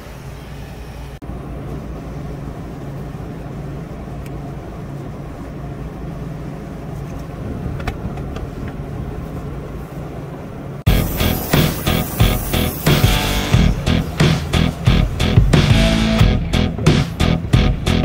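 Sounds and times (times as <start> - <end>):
refrigeration units humming: 0.0 - 18.0.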